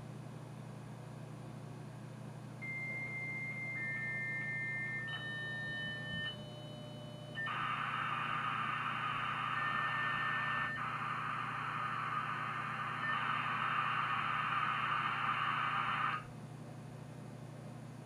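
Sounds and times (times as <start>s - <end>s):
modem answer tone with blips: 2.6s - 16.2s
overlapping higher modem tones: 2.6s - 16.3s
loud modem data hiss: 7.4s - 16.3s.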